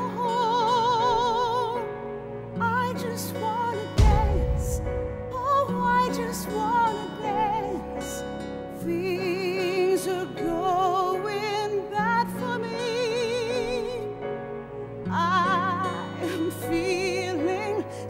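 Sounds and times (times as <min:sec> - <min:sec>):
operatic singing with vibrato: 0:02.6 - 0:14.2
orchestral chords: 0:03.8 - 0:08.8.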